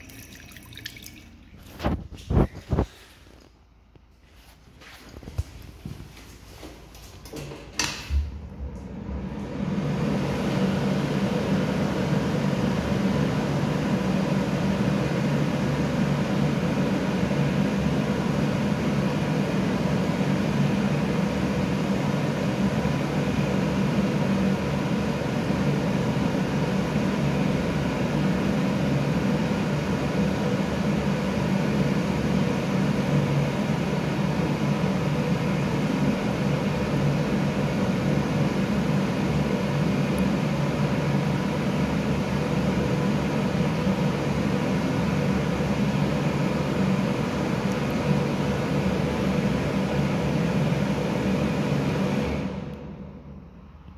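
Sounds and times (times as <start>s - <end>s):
hand dryer fan hum: 0.0s - 53.9s.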